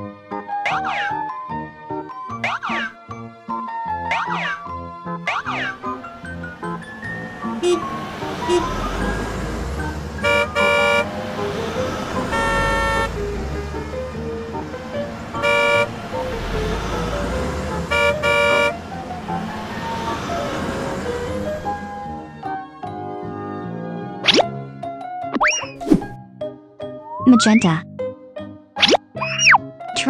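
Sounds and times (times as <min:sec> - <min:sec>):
low engine-like rumbles: 0:05.5 - 0:22.4
cartoon car horns tooting: 0:07.4 - 0:09.0, 0:09.8 - 0:11.2, 0:11.9 - 0:13.9, 0:15.2 - 0:18.9.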